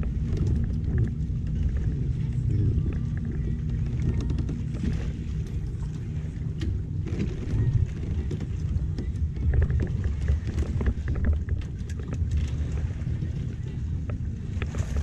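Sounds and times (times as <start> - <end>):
wind buffeting microphone: 0.0 - 15.0
light clicks and taps: 0.3 - 6.0.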